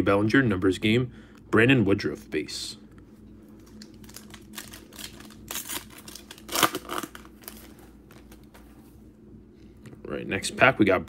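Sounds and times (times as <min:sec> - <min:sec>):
foil wrapper crinkling and ripping: 0:03.6 - 0:08.5.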